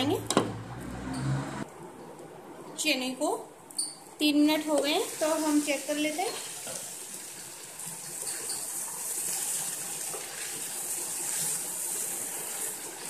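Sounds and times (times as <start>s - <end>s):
chickpeas sizzling in a pan: 4.7s - 13.0s.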